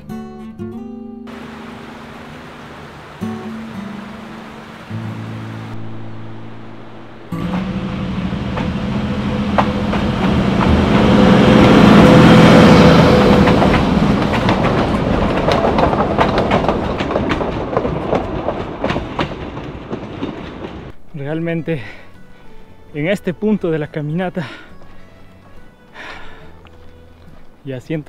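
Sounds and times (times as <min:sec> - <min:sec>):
diesel locomotive engine running: 0:01.3 - 0:03.3, 0:03.9 - 0:21.1
train wheels clacking on rails: 0:07.4 - 0:21.0.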